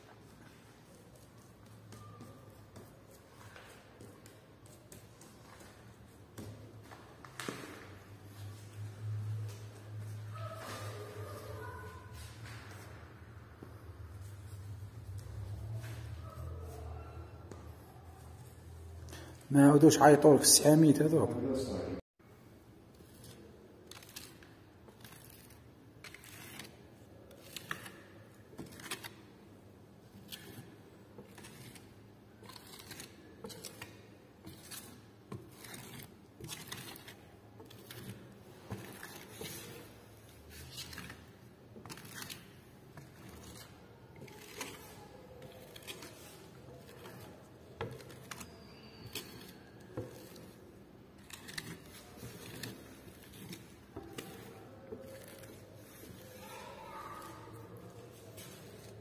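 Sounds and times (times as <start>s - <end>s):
steel trowel scraping: 40.5s - 59.0s.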